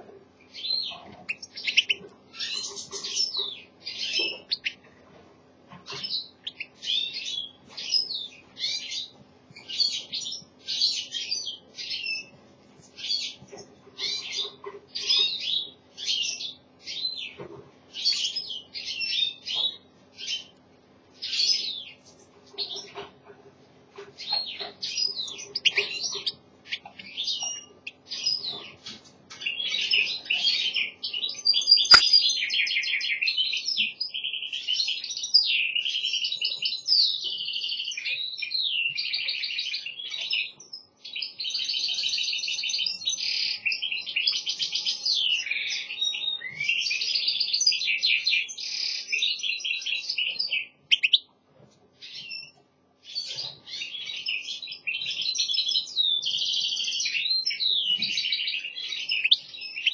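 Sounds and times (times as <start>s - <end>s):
finch twittering song: 0.4s - 4.9s, 5.9s - 20.6s, 24.2s - 51.3s, 52.0s - 59.9s
sharp click: 31.9s - 32.1s.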